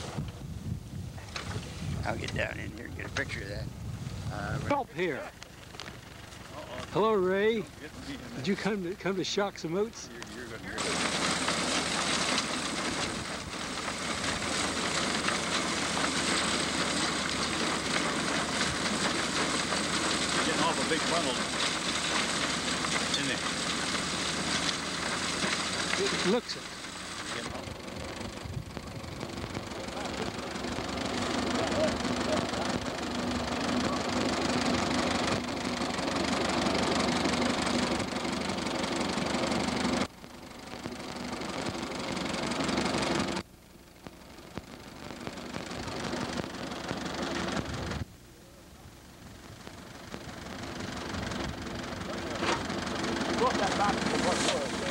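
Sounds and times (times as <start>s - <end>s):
tractor engine running: 0.0s - 54.9s
grain binder mechanical noise: 4.2s - 54.9s
machinery clattering: 9.8s - 43.4s, 49.6s - 54.9s.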